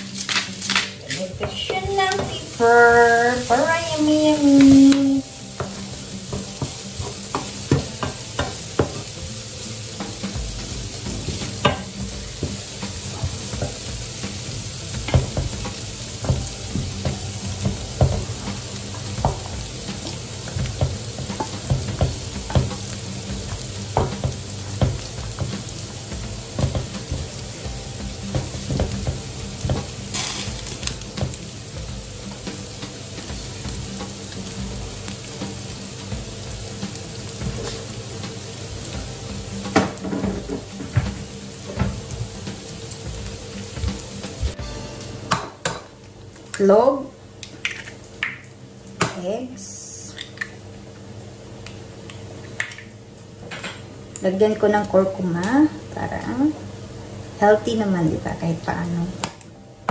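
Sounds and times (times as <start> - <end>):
bacon sizzling in a pan: 0.0 - 53.4, 54.0 - 59.9
wooden utensils scraping pans: 28.4 - 31.4.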